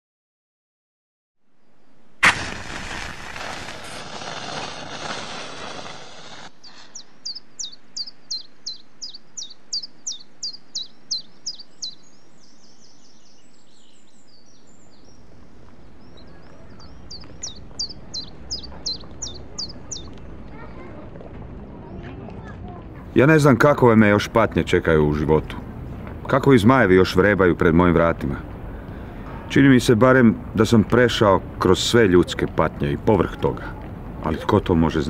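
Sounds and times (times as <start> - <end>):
match striking and flaring: 2.2 - 7.0
songbird chirping: 6.5 - 31.4.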